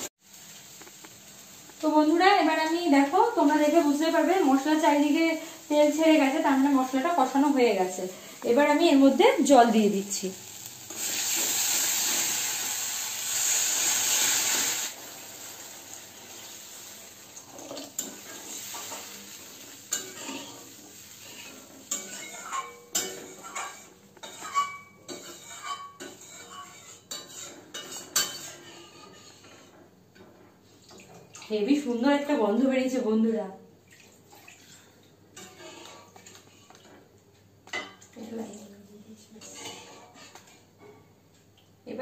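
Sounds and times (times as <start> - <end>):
water sizzling in hot oil: 0.0 - 29.7
spatula scraping metal pan: 19.9 - 29.8, 35.4 - 36.8, 39.4 - 40.5.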